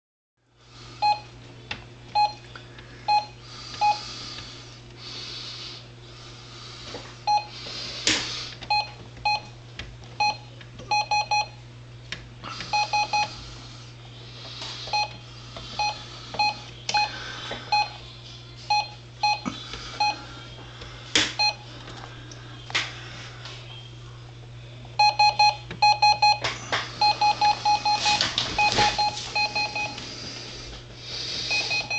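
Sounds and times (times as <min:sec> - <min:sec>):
printer key-press beeps: 0:02.1 - 0:02.4, 0:03.1 - 0:04.0, 0:07.3 - 0:07.5, 0:08.6 - 0:09.6, 0:10.2 - 0:11.6, 0:12.7 - 0:13.3, 0:14.9 - 0:15.2, 0:15.8 - 0:17.1, 0:17.7 - 0:18.0, 0:18.7 - 0:19.4, 0:21.3 - 0:21.6, 0:25.0 - 0:30.0, 0:31.5 - 0:31.9.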